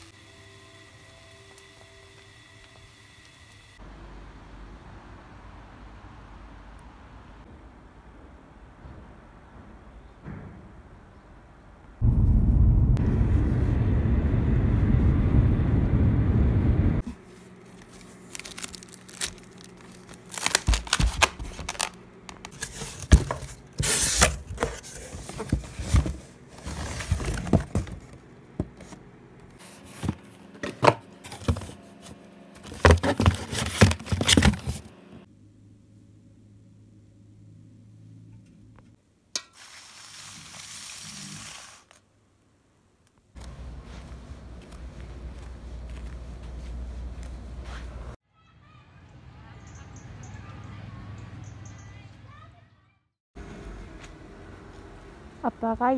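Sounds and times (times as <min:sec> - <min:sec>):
wind rush on microphone: 0:12.0 - 0:17.0
packaging crinkling and tearing: 0:17.5 - 0:25.3.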